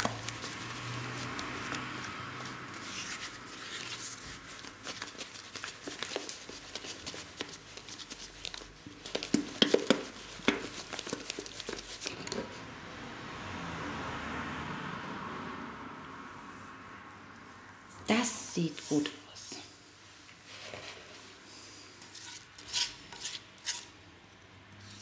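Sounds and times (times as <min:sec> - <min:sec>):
batter knocking and sloshing in pan: 0:09.0 - 0:11.9.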